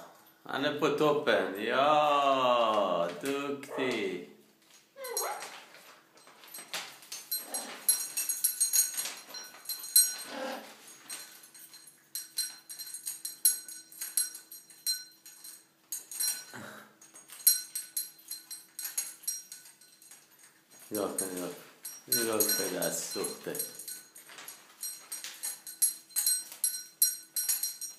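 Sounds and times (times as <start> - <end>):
metal bell toy jingling: 5.0 - 5.6, 6.2 - 27.9.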